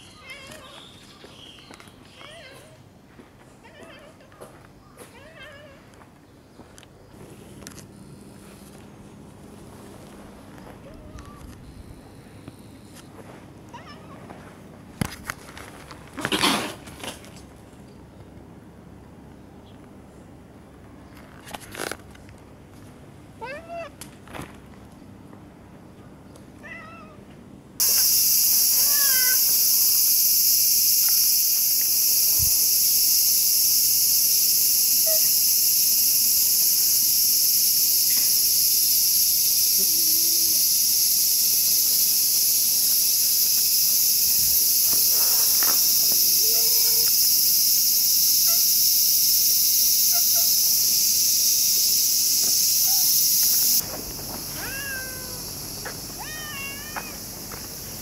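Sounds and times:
cats meowing: 0.1s - 0.8s, 10.8s - 11.6s, 13.7s - 14.4s, 26.6s - 27.2s, 28.7s - 29.5s, 54.5s - 55.4s, 56.1s - 57.2s
insects shrilling: 27.8s - 58.0s.

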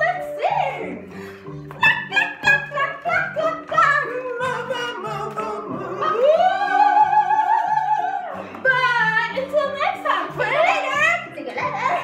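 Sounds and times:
person singing with vibrato: 0.0s - 9.3s.

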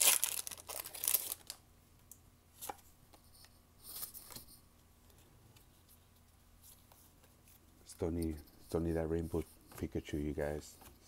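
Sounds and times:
foil wrapper crinkling: 0.0s - 1.6s.

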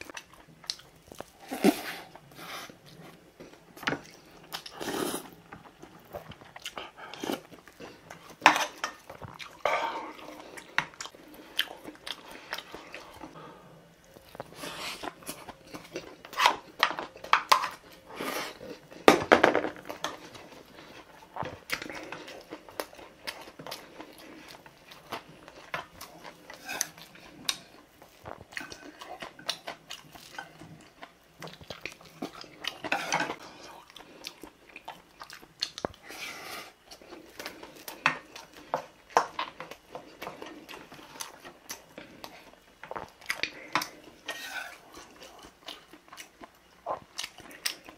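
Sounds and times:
chewing: 0.0s - 13.4s, 14.0s - 19.1s, 19.9s - 47.9s
spoon scraping a steel bowl: 44.3s - 44.8s.

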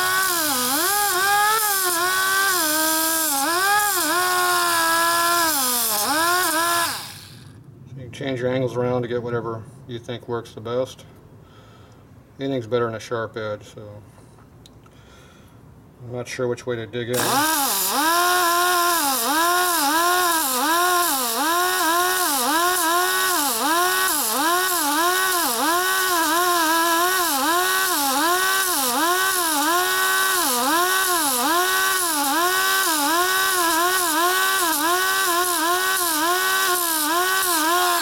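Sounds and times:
die grinder grinding steel: 0.0s - 7.6s, 17.1s - 38.0s.

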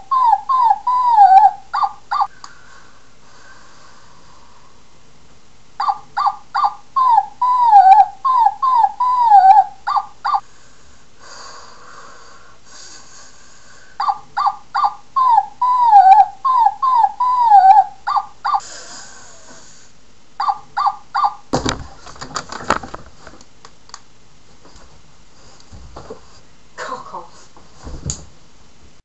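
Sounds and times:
dog yipping and whimpering: 5.8s - 10.4s, 14.0s - 18.6s, 20.4s - 21.4s.

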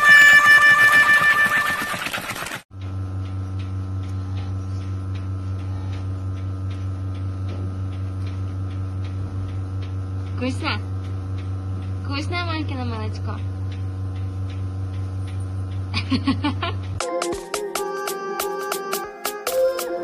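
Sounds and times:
electrical hum: 0.0s - 17.0s
light regular ticking: 2.8s - 17.0s
music: 17.0s - 20.0s.

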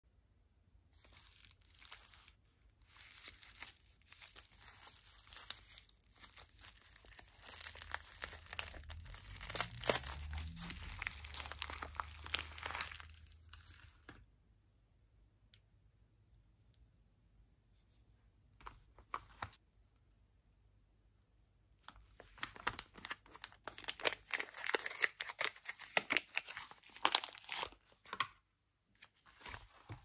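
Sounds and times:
paper wrapper crinkling and tearing: 1.0s - 14.1s, 22.1s - 28.2s.

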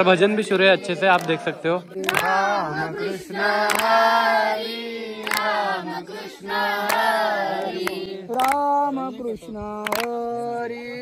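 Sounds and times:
children singing together: 0.5s - 11.0s
sharp hand claps: 1.1s - 2.6s, 3.6s - 4.2s, 5.2s - 5.7s, 6.7s - 8.9s, 9.8s - 10.2s.

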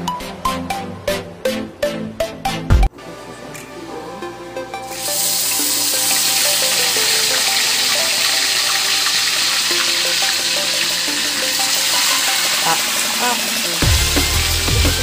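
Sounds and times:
background music: 0.0s - 15.0s
fish sizzling in hot oil: 4.9s - 15.0s.

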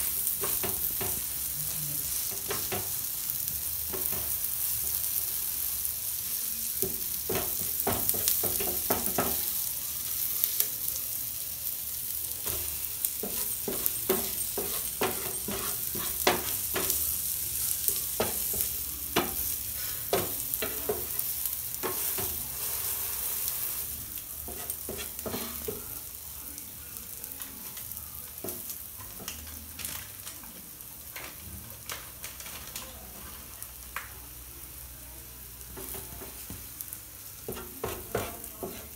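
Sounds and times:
bread sizzling in a pan: 0.0s - 38.9s
spatula scraping and tapping pan: 0.2s - 1.4s, 2.2s - 3.0s, 6.8s - 9.5s, 12.4s - 23.0s, 24.4s - 25.9s, 37.4s - 38.9s.

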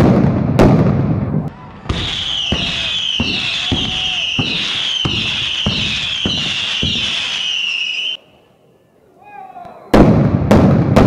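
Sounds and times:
fireworks sharp bangs: 0.0s - 8.2s, 9.9s - 11.0s
fireworks shrill whistling: 1.8s - 8.2s.

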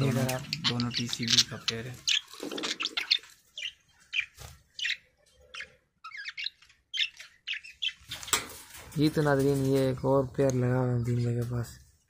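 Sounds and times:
budgerigars chirping: 0.0s - 8.5s.

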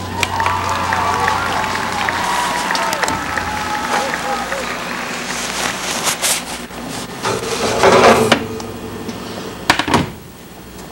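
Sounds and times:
baking sheet scraping on oven rack: 5.3s - 8.4s.

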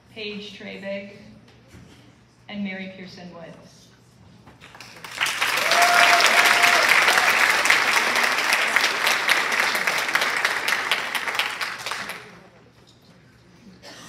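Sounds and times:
large audience clapping: 4.6s - 12.5s.

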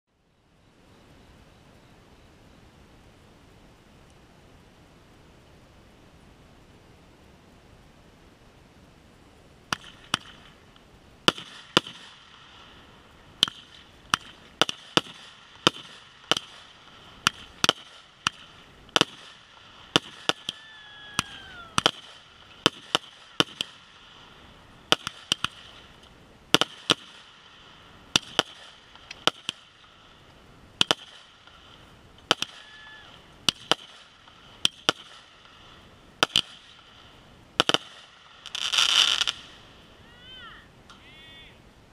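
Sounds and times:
fireworks launching and bursting: 9.5s - 41.5s.

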